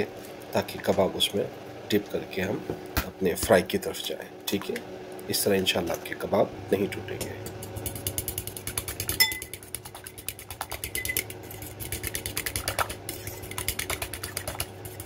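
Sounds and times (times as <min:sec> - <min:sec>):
fork beating egg in bowl: 0:07.1 - 0:15.0
ringing clink: 0:09.2 - 0:09.4.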